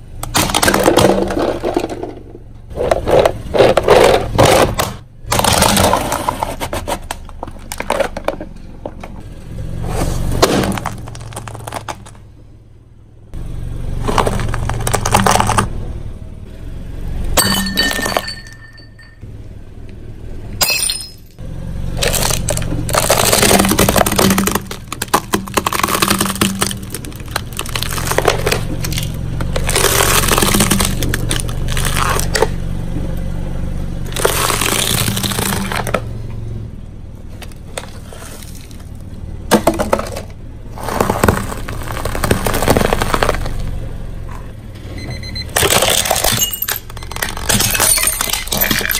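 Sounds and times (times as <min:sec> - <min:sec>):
plastic cracking under tyre: 0:00.2 - 0:09.2, 0:10.4 - 0:12.3, 0:14.0 - 0:15.8, 0:22.0 - 0:32.6, 0:34.0 - 0:36.1, 0:37.4 - 0:43.8, 0:45.5 - 0:48.9
dry food crunching: 0:22.0 - 0:32.4, 0:34.1 - 0:36.0, 0:39.9 - 0:43.7.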